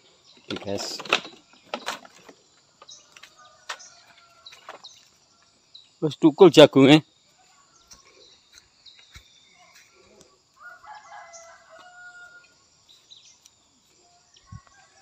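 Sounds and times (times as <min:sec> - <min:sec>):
rooster crowing: 0:10.6 - 0:12.7, 0:14.3 - 0:15.0.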